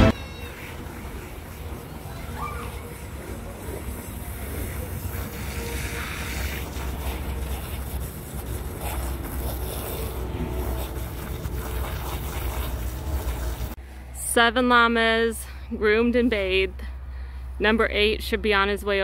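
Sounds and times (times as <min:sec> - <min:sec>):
garden hose spraying water: 0:00.1 - 0:13.8.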